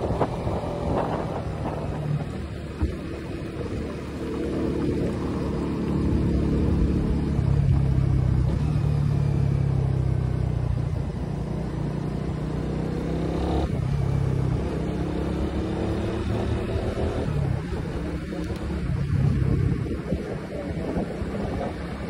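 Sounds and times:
wind on microphone: 0.0 - 8.6, 13.6 - 22.0
motorcycle engine running: 0.0 - 22.0.

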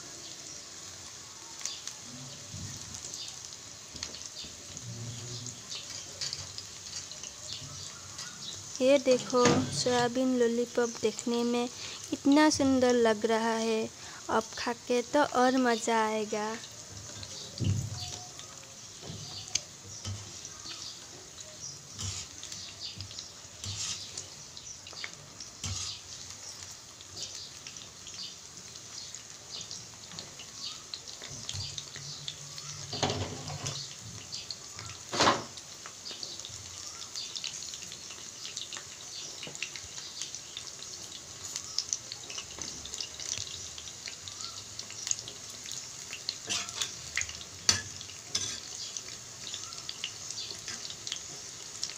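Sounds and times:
food deep-frying in hot oil: 0.0 - 51.9.

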